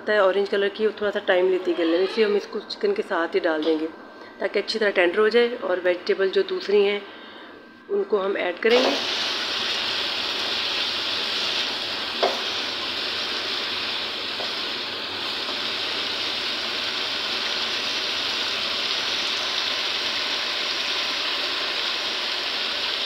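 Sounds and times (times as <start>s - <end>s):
food sizzling in wok: 8.7s - 23.0s.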